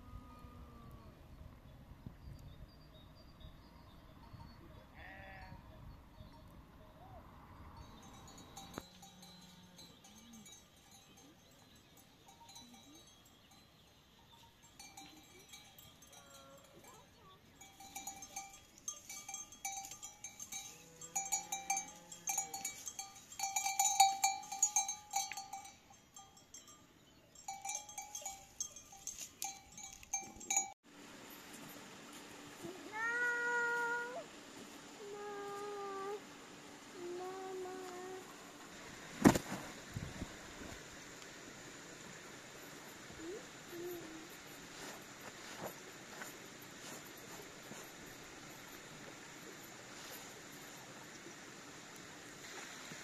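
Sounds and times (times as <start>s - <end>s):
livestock bell clanking: 4.1s - 30.8s.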